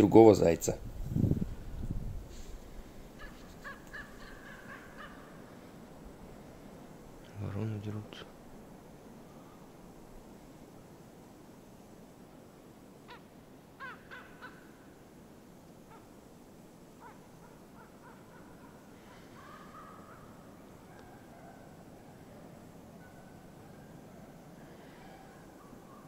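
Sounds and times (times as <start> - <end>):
crows cawing: 3.1 - 5.8, 13.0 - 15.0, 15.8 - 16.2, 17.0 - 25.7.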